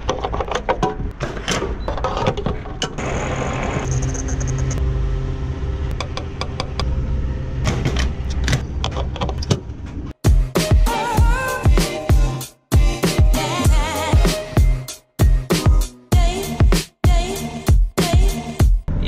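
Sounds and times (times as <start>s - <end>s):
background music: 10.2s - 19.0s.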